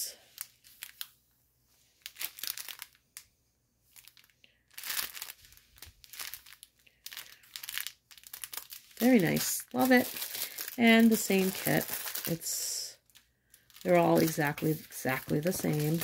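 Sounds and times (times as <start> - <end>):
plastic packets crinkling: 0.1 - 1.1, 1.9 - 3.3, 3.9 - 16.0.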